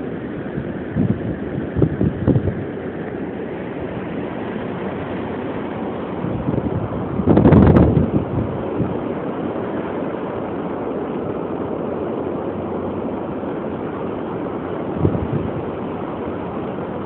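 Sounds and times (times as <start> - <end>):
strong wind rushing: 0.0 - 10.4, 14.8 - 15.9
wind gust thump on microphone: 0.6 - 2.7, 6.2 - 9.0, 15.0 - 15.7.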